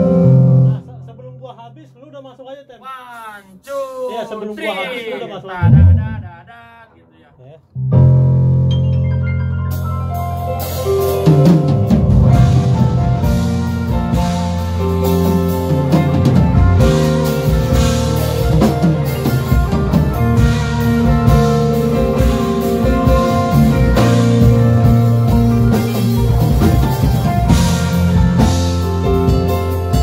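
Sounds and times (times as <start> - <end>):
electric guitar: 9.9 - 30.0
drum and cymbal hits: 10.8 - 30.0.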